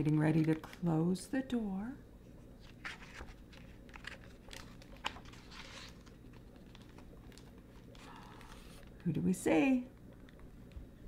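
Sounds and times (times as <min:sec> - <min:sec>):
book pages turning: 0:02.4 - 0:09.0.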